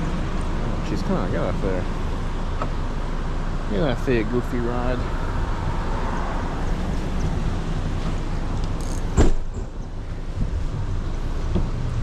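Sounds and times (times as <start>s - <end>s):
road traffic rumble: 0.0s - 12.0s
sharp knock: 9.1s - 9.8s.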